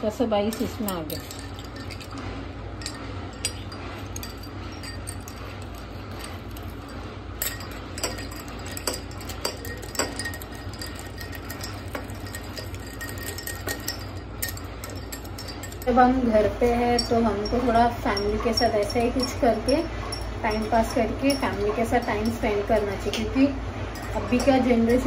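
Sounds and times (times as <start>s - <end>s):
sharp clinks against glass: 0.5s - 2.2s, 2.8s - 16.0s
spoon stirring ice in glasses: 0.5s - 25.0s.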